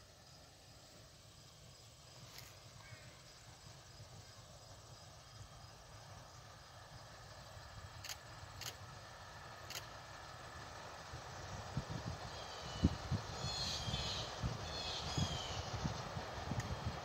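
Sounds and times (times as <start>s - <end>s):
distant steam locomotive rumble: 0.0s - 17.0s
sharp high ticks: 7.9s - 8.9s, 9.6s - 10.0s.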